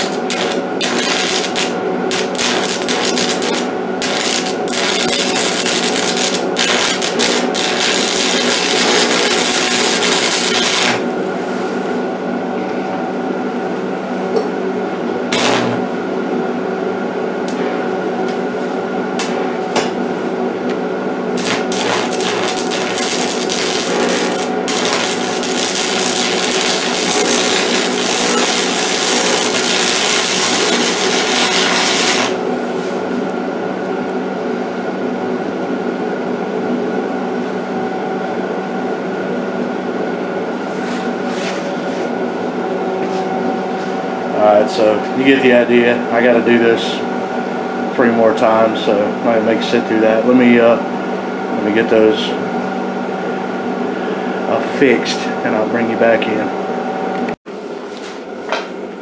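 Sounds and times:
welding arc crackling and hissing: 0.0 - 11.1, 15.3 - 15.8, 21.4 - 32.4
steady hum: 0.0 - 59.0.

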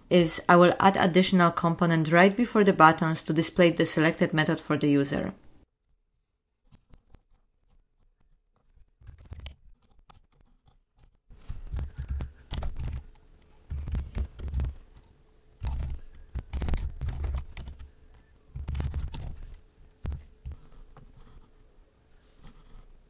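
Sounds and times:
computer keyboard typing: 9.0 - 10.8, 11.6 - 20.8.

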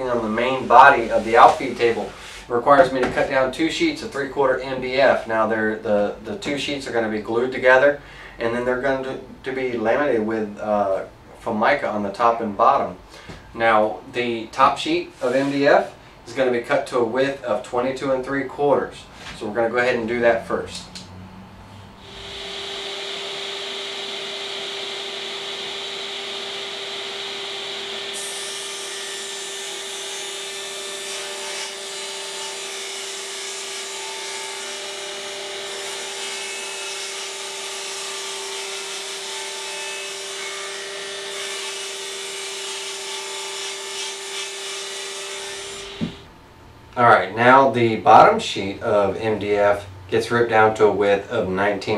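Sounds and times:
table saw cutting board: 0.2 - 3.2, 21.8 - 46.3.

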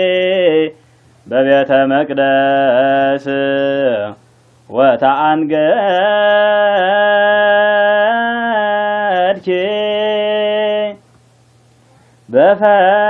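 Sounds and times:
quick breath: 0.8 - 1.2, 11.7 - 12.3
man chanting: 12.3 - 13.0.

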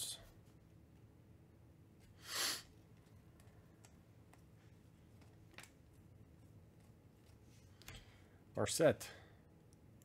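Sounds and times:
trading cards flipped by hand: 5.1 - 6.0.

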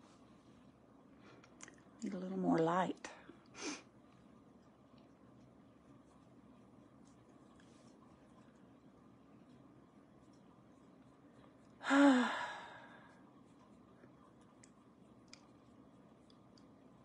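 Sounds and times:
woman sighing: 11.8 - 12.9.

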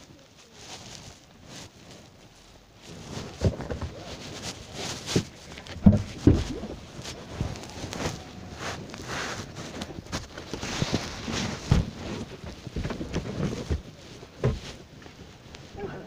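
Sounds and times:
sleeve rubbing on microphone: 0.5 - 15.6
low knocks and thumps: 3.2 - 14.8.

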